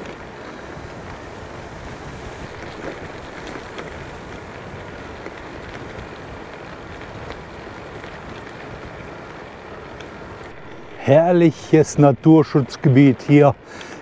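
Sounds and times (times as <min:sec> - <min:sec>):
wind buffeting microphone: 0:00.0 - 0:13.9
faint clicks: 0:13.6 - 0:14.0.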